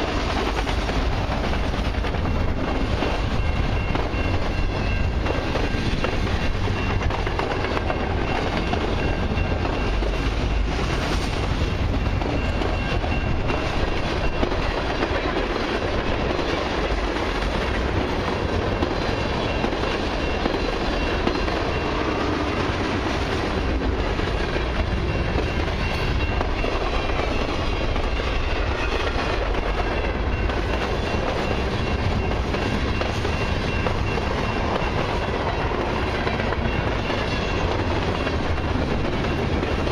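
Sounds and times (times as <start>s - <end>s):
freight train cars rolling past: 0.0s - 39.9s
steel wheels clattering over rail joints: 0.0s - 39.9s.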